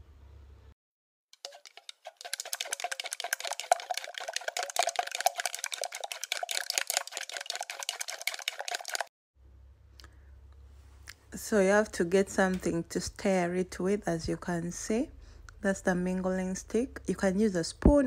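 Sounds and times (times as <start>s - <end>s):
porridge pouring and stirring: 1.4s - 9.1s.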